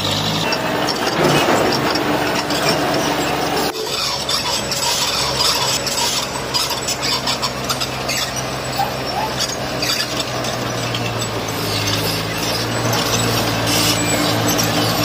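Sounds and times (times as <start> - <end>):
diesel machinery engine drone: 0.0 - 15.0
stone scraping and grinding: 9.3 - 15.0.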